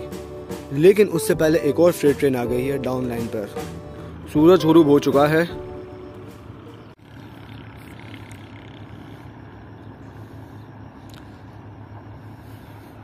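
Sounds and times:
diesel locomotive engine drone: 0.0s - 13.0s
faint open-air noise: 0.0s - 13.0s.

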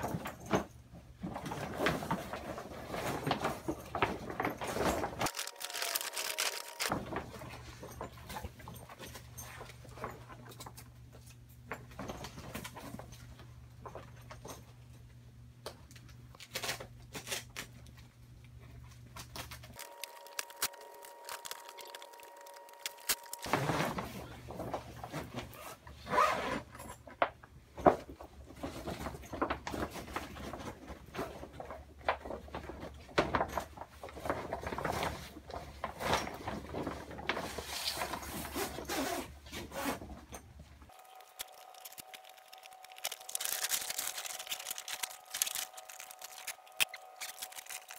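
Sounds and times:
fabric rustling and crinkling: 40.9s - 47.9s.

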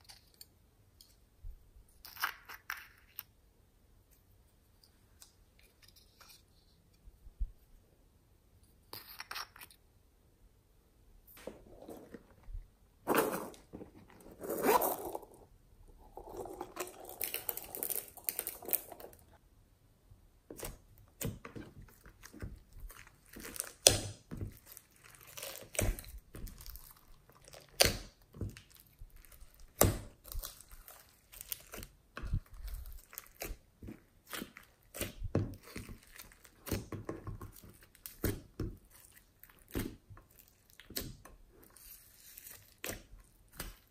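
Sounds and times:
sticky slime clicking and crackling: 20.6s - 41.4s.

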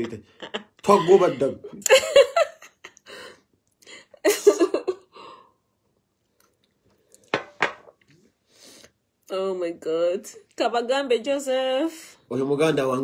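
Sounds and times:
sharp burst of breath: 8.4s - 9.0s.

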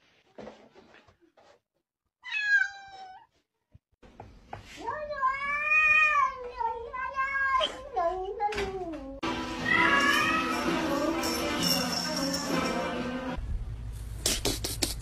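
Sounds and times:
cat meowing: 2.2s - 3.3s.

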